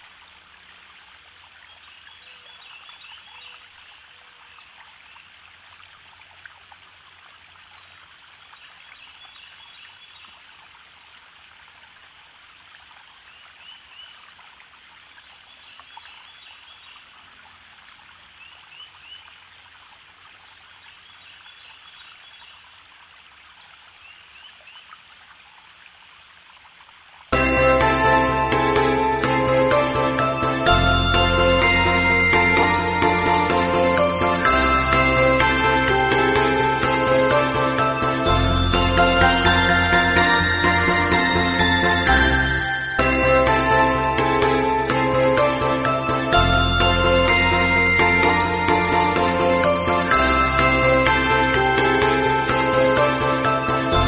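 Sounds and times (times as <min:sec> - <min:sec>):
loud music: 0:27.4 - 0:54.0.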